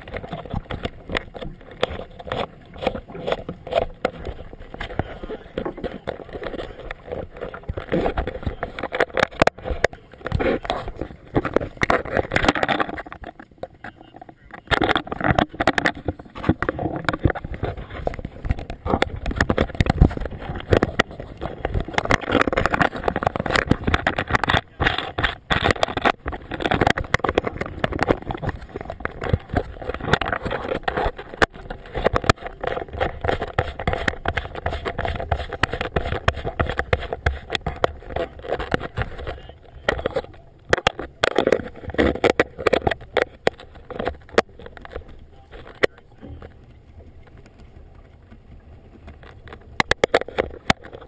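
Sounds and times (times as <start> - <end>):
flag flapping: 14.5 - 51.0.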